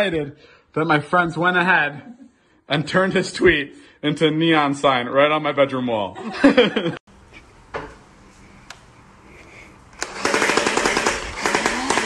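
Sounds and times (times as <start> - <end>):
toy blaster firing full-auto: 10.0 - 12.0.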